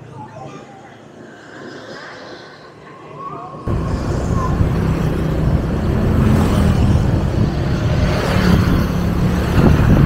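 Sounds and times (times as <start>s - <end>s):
wind and road noise: 1.0s - 10.0s
scooter engine hum: 3.6s - 10.0s.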